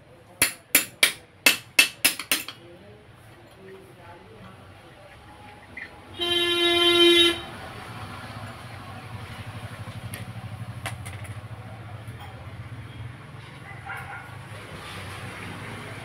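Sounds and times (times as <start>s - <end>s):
vehicle horn: 6.1s - 7.6s.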